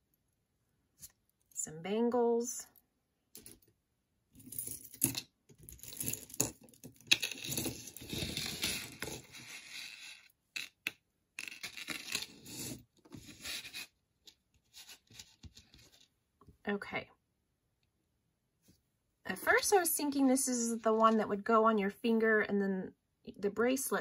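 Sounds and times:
jewelry rustling and scraping: 4.4 - 16.2.

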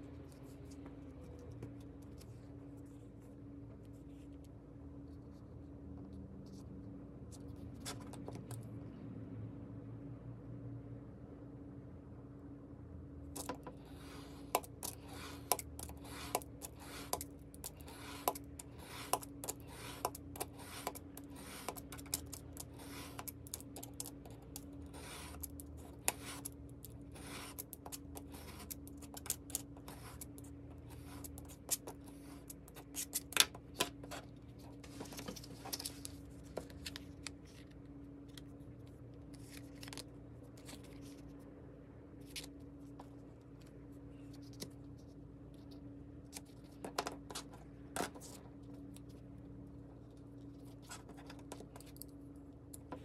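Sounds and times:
faint steady hum: 0.0 - 53.0
utility knife cutting paper: 13.4 - 30.4.

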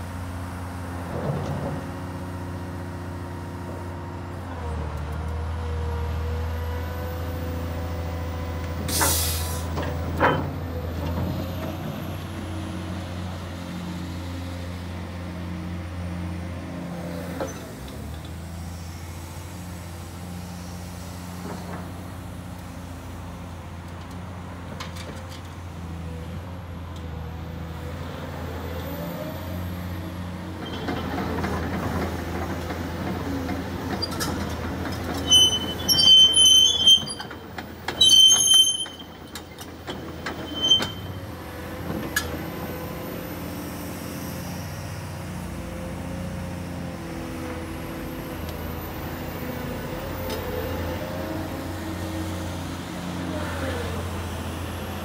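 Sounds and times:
excavator diesel engine running: 0.1 - 55.0
hydraulic whine: 35.1 - 41.3
high-pitched squeals: 35.2 - 39.6, 40.2 - 41.3.

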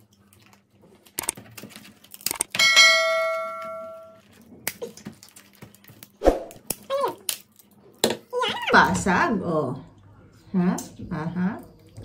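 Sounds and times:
bell chime ding: 2.6 - 4.2
shellfish shells cracking: 4.2 - 8.1.

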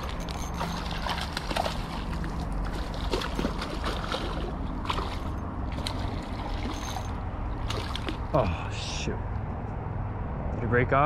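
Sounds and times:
water splashing and gurgling: 0.0 - 8.7.

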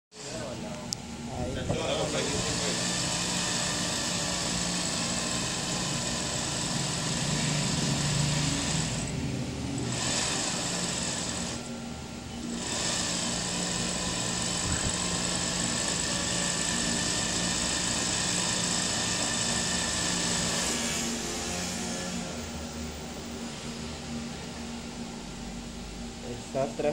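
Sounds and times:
low motor hum: 0.2 - 26.9
sewing machine stitching: 2.1 - 9.1, 9.8 - 11.6, 12.5 - 21.7.

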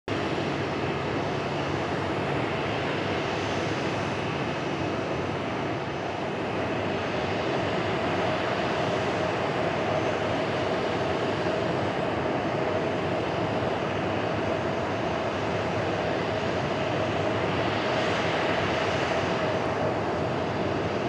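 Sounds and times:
faint engine whine: 0.1 - 21.0
jet engine rushing: 0.1 - 21.0.

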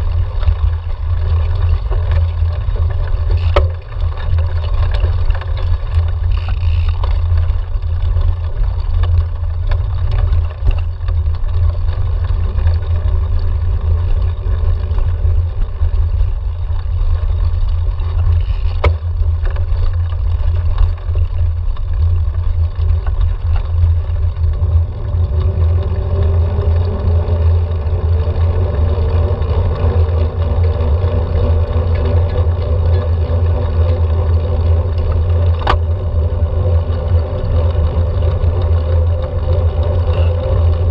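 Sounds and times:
bike tyre noise: 0.0 - 40.9.

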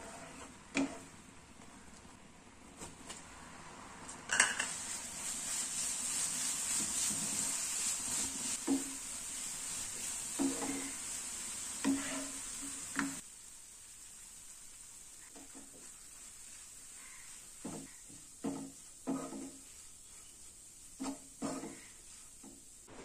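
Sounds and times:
syrup sizzling in a pan: 4.3 - 22.9
spatula knocking against pan: 17.6 - 19.6.

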